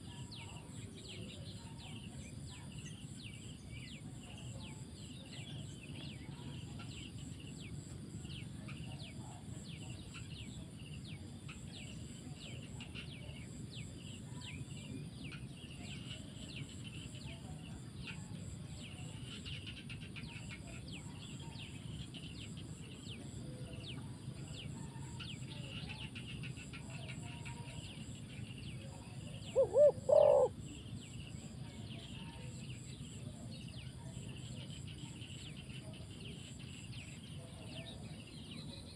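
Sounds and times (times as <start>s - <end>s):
low background noise: 0.0s - 38.9s
small birds chirping: 0.0s - 38.9s
dove cooing: 29.1s - 30.7s.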